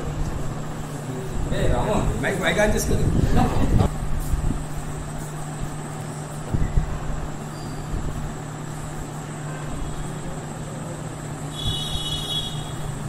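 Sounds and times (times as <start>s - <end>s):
low electrical hum: 0.0s - 13.0s
faint high whine: 4.0s - 13.0s.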